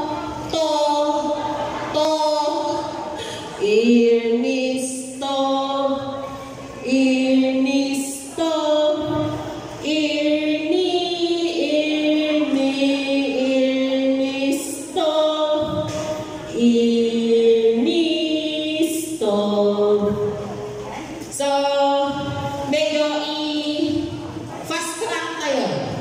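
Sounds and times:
voices singing unaccompanied: 0:00.0 - 0:24.3.

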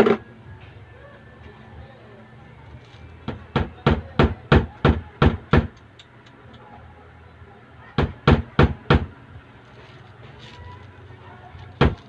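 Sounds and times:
sharp knocks on wood: 0:03.3 - 0:05.8.

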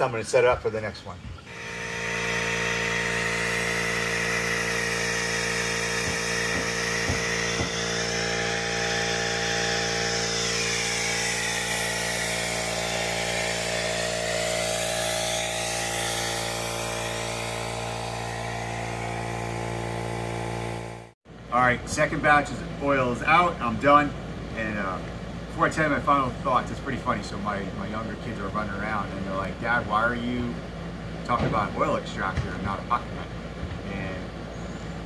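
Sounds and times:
air compressor running: 0:01.4 - 0:21.2.

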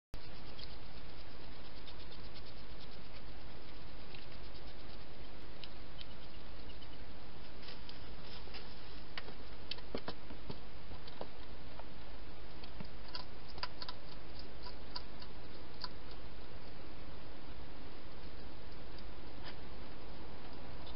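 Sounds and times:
hedgehog feeding clicks and crunches: 0:00.2 - 0:07.0, 0:09.2 - 0:11.5, 0:12.4 - 0:16.7
steady background hiss: 0:00.2 - 0:20.9.

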